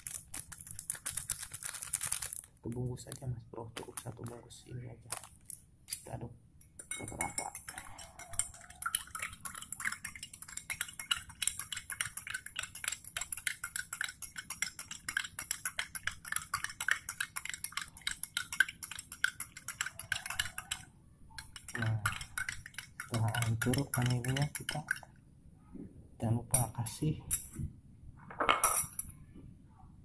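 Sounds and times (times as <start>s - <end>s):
metal spoon clinking against glass: 6.8s - 25.1s, 28.6s - 29.1s.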